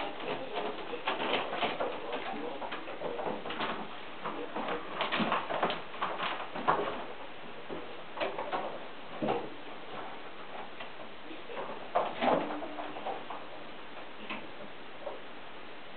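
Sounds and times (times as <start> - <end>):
claws scrabbling: 0.0 - 15.2
kittens' paws thumping on wood: 0.0 - 15.2.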